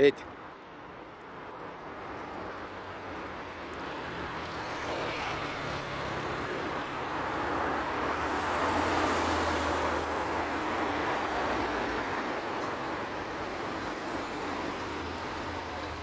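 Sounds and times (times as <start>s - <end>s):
road traffic passing: 0.0s - 16.0s.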